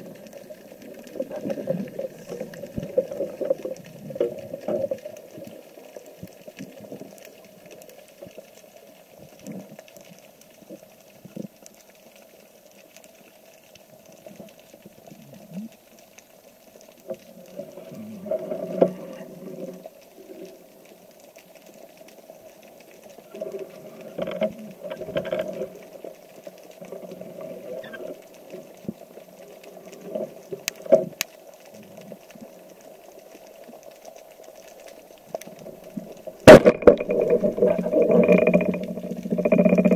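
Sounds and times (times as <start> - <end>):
soft underwater knocks and clicks: 24.0 - 26.0, 34.6 - 39.9.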